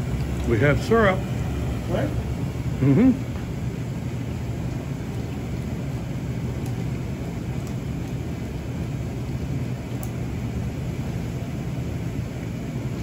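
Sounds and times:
blower fan: 0.0 - 13.0
evaporator rumble and hum: 0.0 - 13.0.

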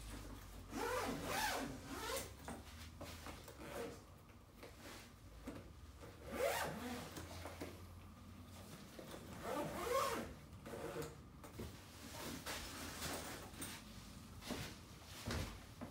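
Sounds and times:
zippers being pulled: 0.7 - 2.3, 6.2 - 7.3, 9.4 - 11.2.

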